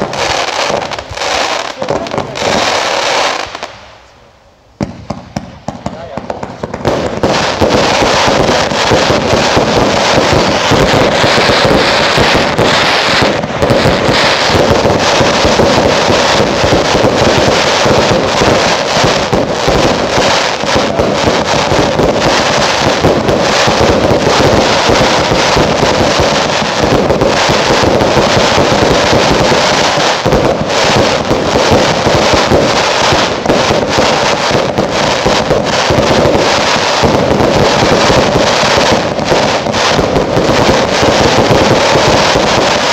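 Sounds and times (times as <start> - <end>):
fireworks launching and bursting: 0.0 - 42.9
fireworks stars crackling: 0.0 - 42.9.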